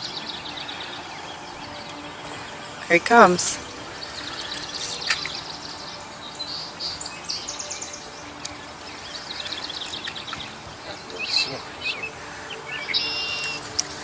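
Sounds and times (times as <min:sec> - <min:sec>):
outdoor background noise: 0:00.0 - 0:14.0
small birds chirping and trilling: 0:00.0 - 0:14.0.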